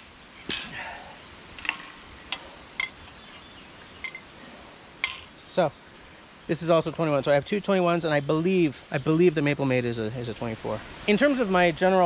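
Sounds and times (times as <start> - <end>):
saws being handled clicking: 1.6 - 3.4.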